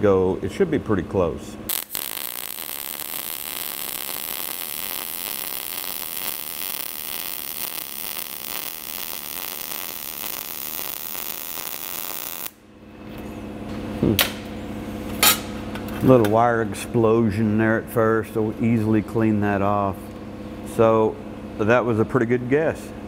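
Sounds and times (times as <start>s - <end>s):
welding arc crackling: 1.7s - 12.6s.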